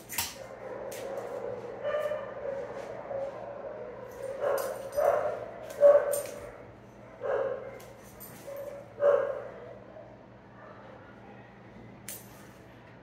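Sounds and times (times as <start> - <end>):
dog yipping barks: 4.1 - 6.5, 7.2 - 7.8, 8.5 - 9.5.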